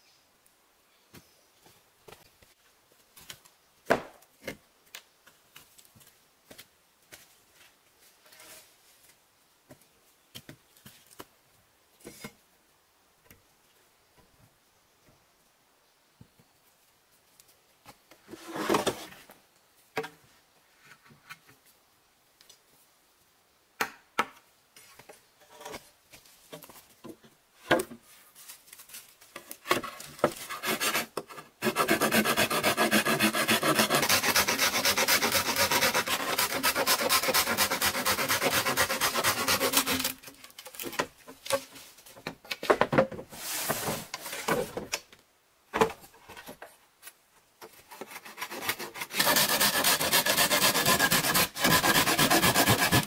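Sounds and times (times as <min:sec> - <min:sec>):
knocks and scrapes: 0:17.9 - 0:19.4, 0:38.9 - 0:44.9
hand saw cutting bamboo: 0:30.3 - 0:40.3, 0:48.0 - 0:53.0.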